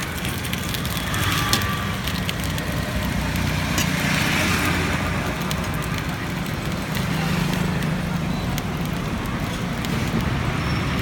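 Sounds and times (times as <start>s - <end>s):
rice cakes sizzling in oil: 0.0s - 11.0s.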